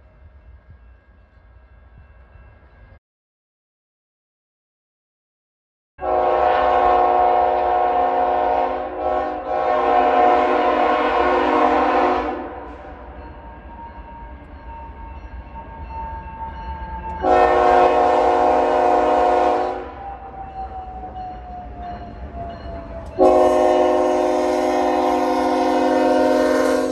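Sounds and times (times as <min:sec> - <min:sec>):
train running with faint whine: 0:00.0 - 0:03.0, 0:06.0 - 0:26.9
locomotive air horn blasts: 0:06.0 - 0:13.0, 0:17.2 - 0:20.0, 0:23.2 - 0:26.9.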